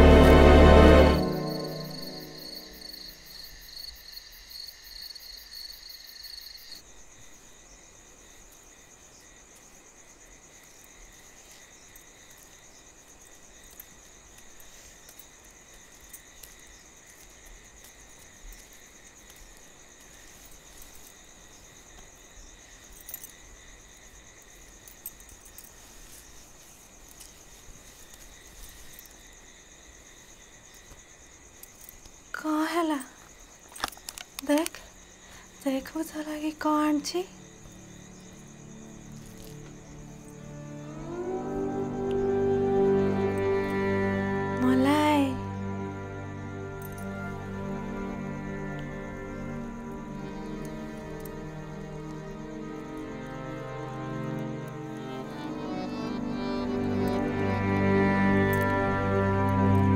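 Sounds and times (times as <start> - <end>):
soft music: 0.0 - 3.2, 35.6 - 59.9
crickets chirring: 0.0 - 59.9.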